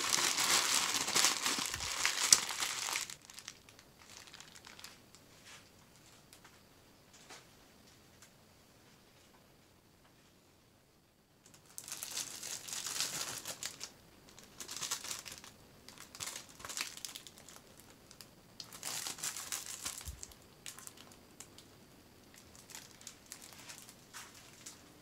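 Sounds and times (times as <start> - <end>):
plastic wrapping crinkling: 0.0 - 5.1, 11.4 - 21.6, 22.3 - 24.9.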